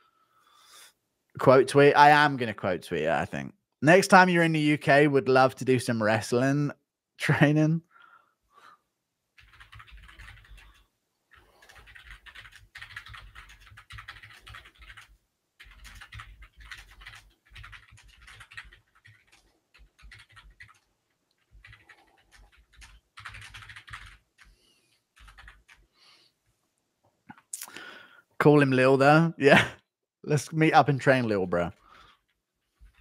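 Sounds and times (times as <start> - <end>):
computer keyboard typing: 9.4 - 25.9.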